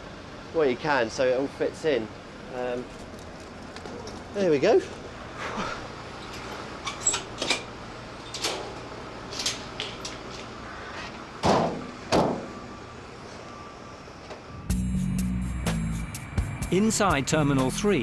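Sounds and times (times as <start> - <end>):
van doors slamming: 11.4 - 12.6.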